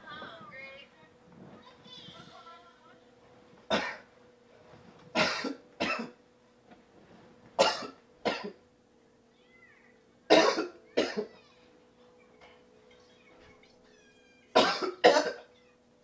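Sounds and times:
man coughing: 14.6s - 15.5s.

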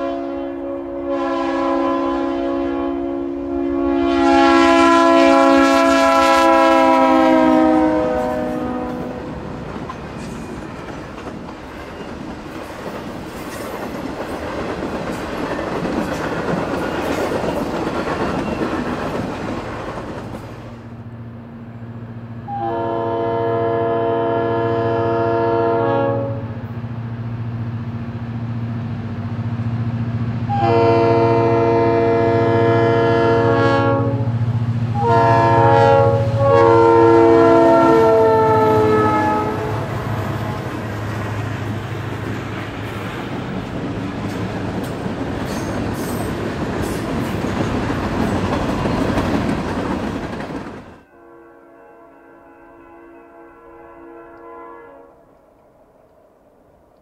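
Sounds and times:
locomotive air horn: 0.0s - 9.5s, 22.4s - 26.6s, 30.5s - 40.8s, 51.1s - 55.3s
train wheels clattering on rails: 9.4s - 20.8s, 40.3s - 51.0s.

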